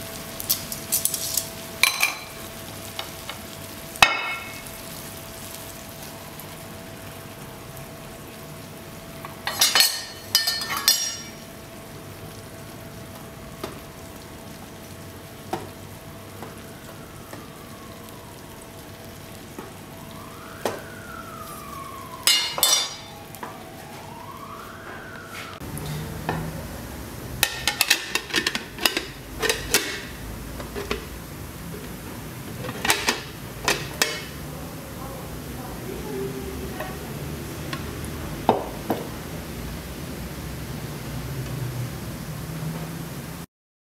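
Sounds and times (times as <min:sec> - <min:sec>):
sugar and apples sizzling in a pan: 0:00.0 - 0:23.4, 0:25.6 - 0:43.2
pan and plate clattering: 0:00.5 - 0:02.4, 0:04.0 - 0:04.6, 0:09.4 - 0:11.4, 0:22.3 - 0:23.1, 0:27.4 - 0:31.1, 0:32.5 - 0:34.3
faint siren-like wail: 0:12.7 - 0:27.1.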